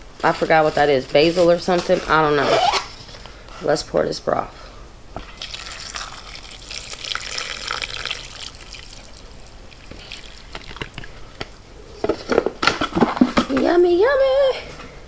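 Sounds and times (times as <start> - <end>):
broth pouring and splashing: 5.4 - 11.2.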